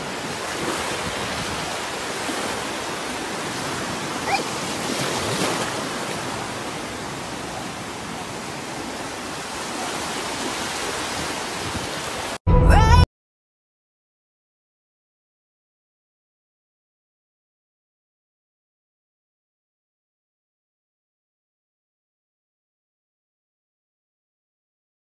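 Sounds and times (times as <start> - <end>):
small waves breaking: 0.0 - 12.4.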